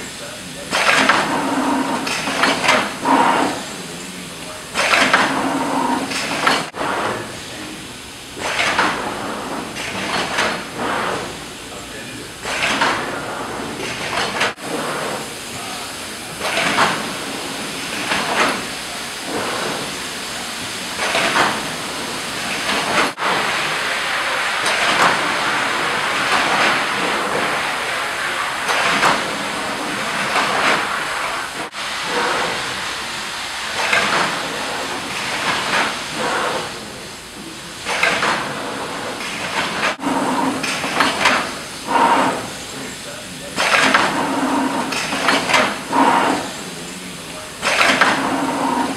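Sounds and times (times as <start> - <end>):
air cylinders hissing: 0.0 - 48.9
steady machine noise: 0.0 - 48.9.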